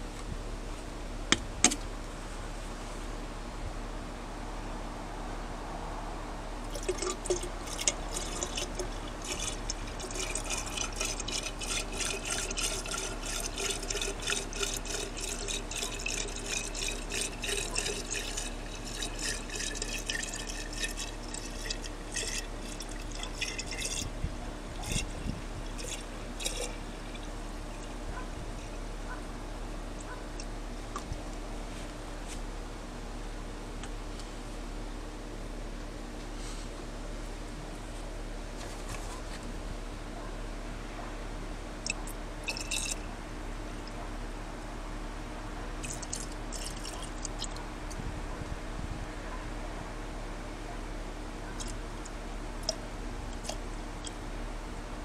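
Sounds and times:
liquid glugging from jug: 0:06.6 - 0:29.3, 0:41.8 - 0:43.1, 0:45.7 - 0:48.0, 0:51.5 - 0:54.2.

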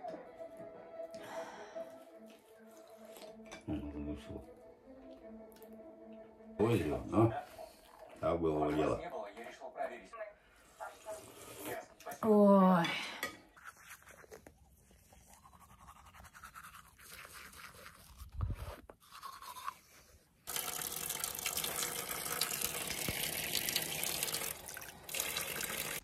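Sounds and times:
toothbrush scrubbing teeth: 0:02.1 - 0:03.6, 0:10.7 - 0:12.2, 0:13.4 - 0:26.0.

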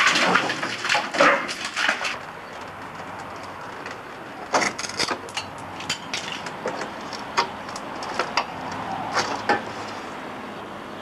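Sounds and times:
knocks and scrapes on wood: 0:09.1 - 0:10.1.

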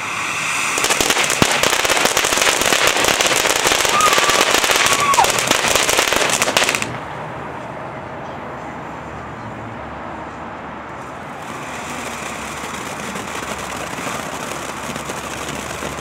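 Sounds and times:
fountain firework rushing and crackling: 0:00.0 - 0:07.2, 0:11.1 - 0:16.0.

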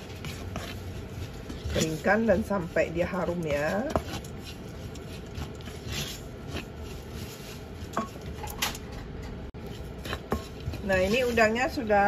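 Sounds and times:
spatula scraping frying pan: 0:00.0 - 0:08.2, 0:09.6 - 0:12.0.

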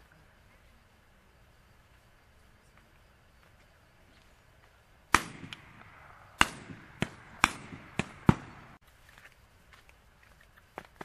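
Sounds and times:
shotgun shots: 0:05.1 - 0:08.8.

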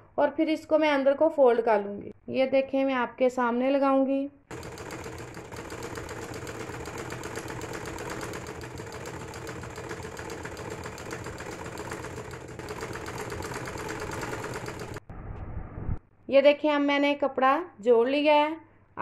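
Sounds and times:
sewing machine rattling: 0:04.5 - 0:15.0.

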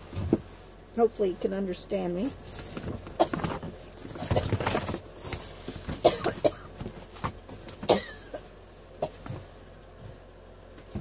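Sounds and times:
plastic bag rustling: 0:02.2 - 0:06.2.

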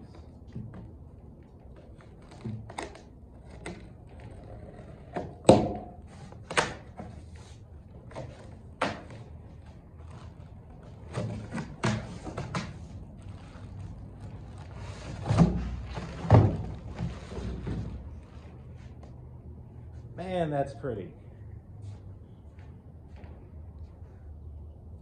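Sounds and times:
cardboard flaps scraping: 0:06.1 - 0:18.9.

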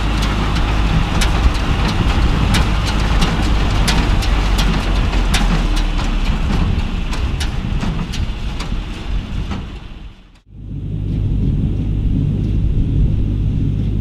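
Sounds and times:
hay baler clacking knocks: 0:00.0 - 0:10.4
tractor engine running: 0:00.0 - 0:14.0.

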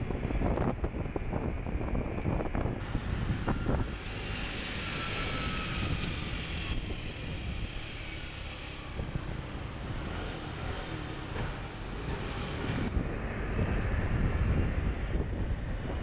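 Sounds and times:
scooter engine drone: 0:00.0 - 0:16.0
wind rumble on microphone: 0:00.0 - 0:16.0.

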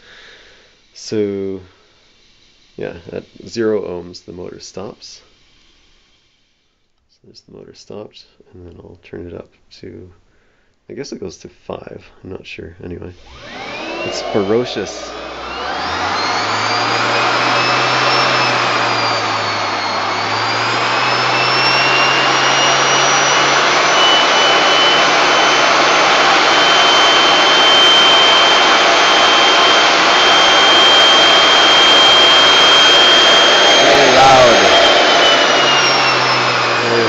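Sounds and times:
electric motor whining at high speed: 0:13.2 - 0:37.0.

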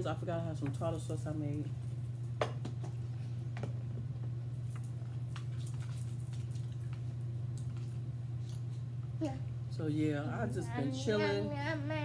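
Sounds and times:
steady low hum: 0:00.0 - 0:12.0
wet eating noises: 0:05.0 - 0:08.9.

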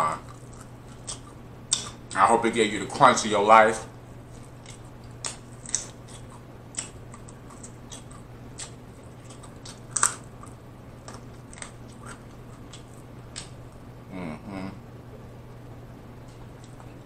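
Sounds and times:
person chewing with mouth smacks: 0:00.2 - 0:02.2, 0:04.3 - 0:13.6, 0:16.2 - 0:17.0.

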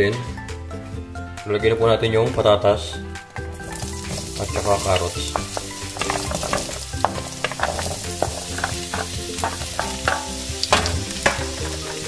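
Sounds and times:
vegetables sizzling in hot oil: 0:03.3 - 0:12.0
vegetable pieces clicking in pan: 0:03.4 - 0:12.0.

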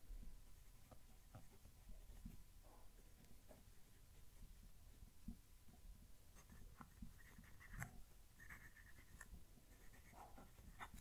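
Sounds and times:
pen nib scratching paper: 0:06.3 - 0:11.0.

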